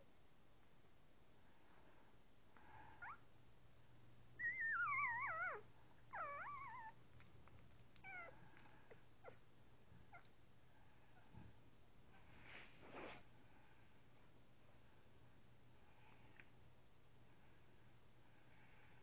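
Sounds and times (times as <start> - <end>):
puppies whimpering: 4.4 - 7.0, 8.0 - 9.4.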